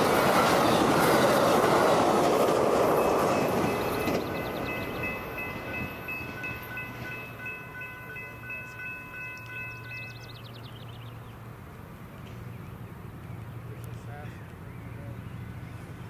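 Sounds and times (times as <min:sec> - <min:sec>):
train rumble: 0:00.0 - 0:16.0
crossing bell ringing: 0:02.2 - 0:10.6.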